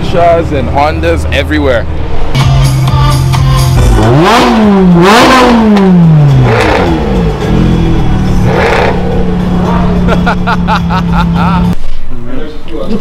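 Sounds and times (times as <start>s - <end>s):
sports car engine revving: 0.0s - 11.8s.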